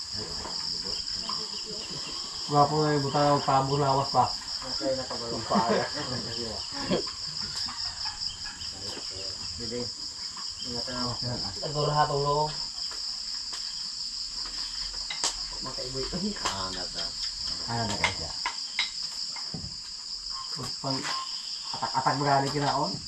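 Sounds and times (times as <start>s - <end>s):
voices: 0.0s - 12.7s, 15.5s - 18.4s, 20.5s - 23.0s
insects trilling: 0.0s - 23.0s.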